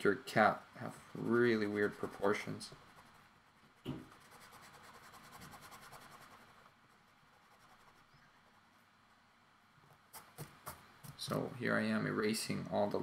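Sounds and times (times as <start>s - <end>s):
eraser rubbing on paper: 1.6s - 3.2s, 4.0s - 8.1s.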